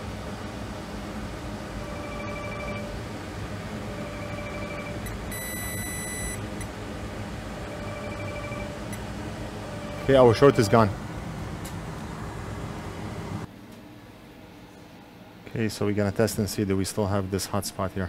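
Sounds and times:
steady low hum: 0.0 - 18.0
low electronic beep: 1.8 - 2.9, 3.9 - 6.4, 9.7 - 10.9
higher bright beep: 3.9 - 6.4.

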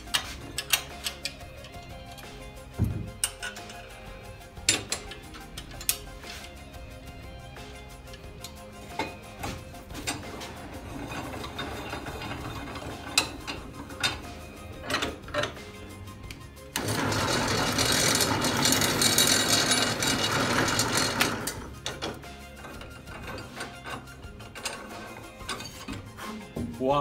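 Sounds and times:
drill press boring into wood: 16.8 - 21.7.

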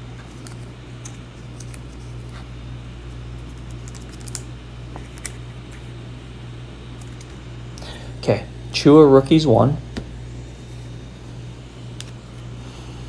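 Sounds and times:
trading cards clicking and scraping: 0.0 - 6.0, 6.9 - 7.4, 11.8 - 12.5
steady low hum: 0.0 - 13.0.

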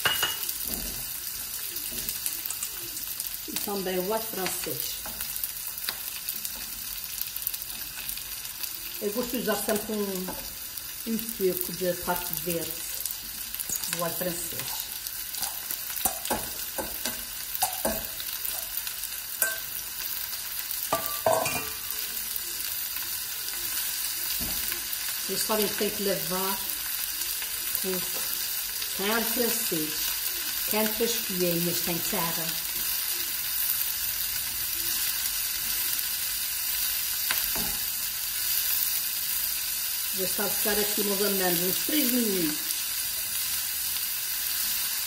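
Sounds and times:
onion sizzling in a frying pan: 0.0 - 45.0
spatula knocking and scraping pan: 15.4 - 18.2.

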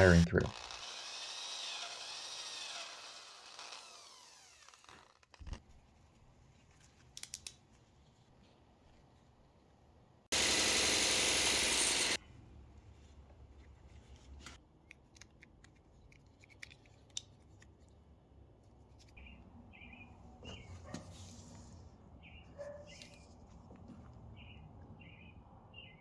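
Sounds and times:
loud hissing: 10.3 - 12.2
plastic parts clicking and rubbing: 14.3 - 18.0.

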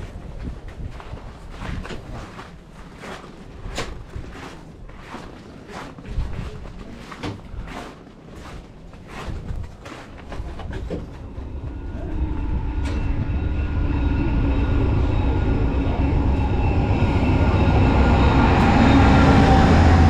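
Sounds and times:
diesel passenger train rumbling: 10.6 - 20.0.

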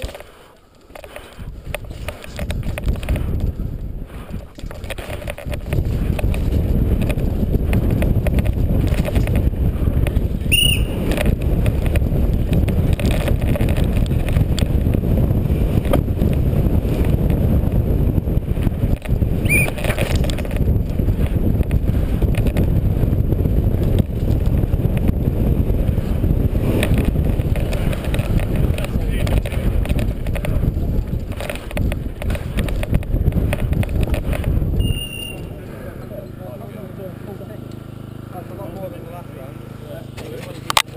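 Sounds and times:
bike rumbling and rattling: 0.0 - 40.9
wind buffeting microphone: 0.9 - 36.3
high squeaks: 10.5 - 11.0, 19.4 - 20.0, 34.8 - 35.6.

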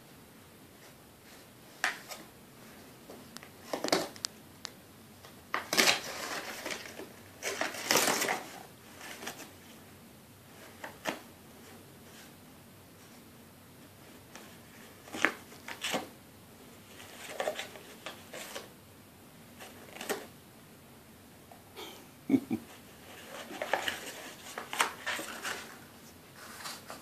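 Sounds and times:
dog tearing and chewing cardboard: 5.5 - 8.6.

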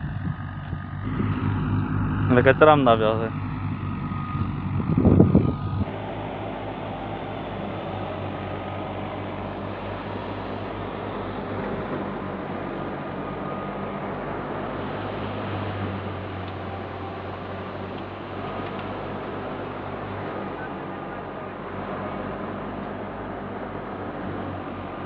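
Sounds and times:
tractor diesel engine hum: 0.0 - 25.0
loud burst of noise: 0.9 - 20.5.

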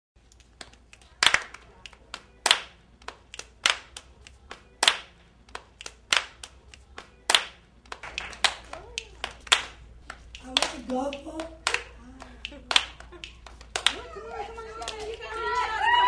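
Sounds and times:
rhythmic hand clapping: 0.2 - 16.0.

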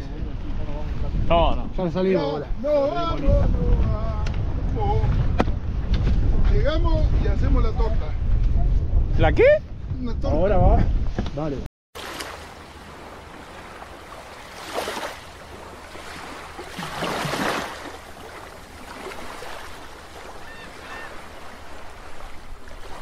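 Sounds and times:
underwater water wash: 12.0 - 23.0.

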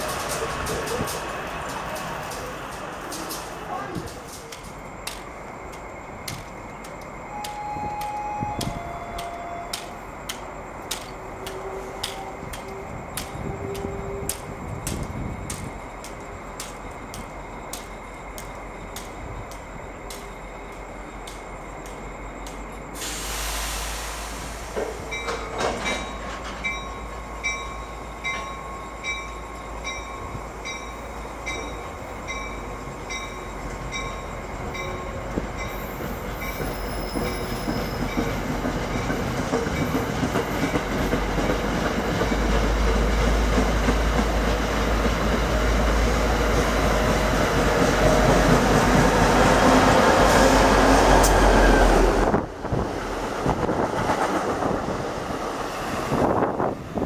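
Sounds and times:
train passing rumble and rush: 0.0 - 57.0
train wheels clicking on rails: 0.0 - 57.0.

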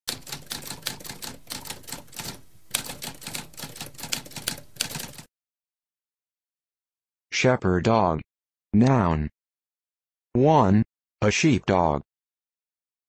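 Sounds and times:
typewriter keys clacking: 0.1 - 5.3.

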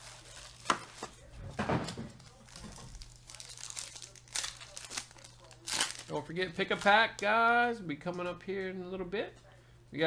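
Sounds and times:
card pack wrappers crinkling: 0.0 - 1.2, 2.1 - 7.4.

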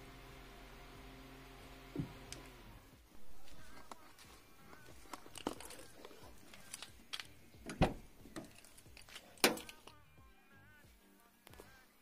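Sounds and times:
car door knocks and clicks: 7.6 - 8.1.

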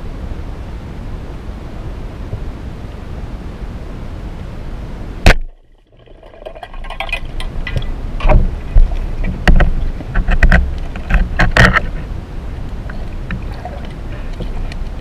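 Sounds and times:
muffled underwater water rush: 0.0 - 15.0
underwater knocks and clunks: 5.3 - 12.1, 12.9 - 14.9.

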